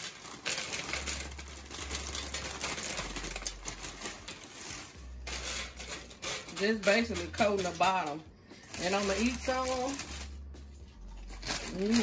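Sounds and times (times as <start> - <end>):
cereal pattering into metal pan: 0.0 - 8.1.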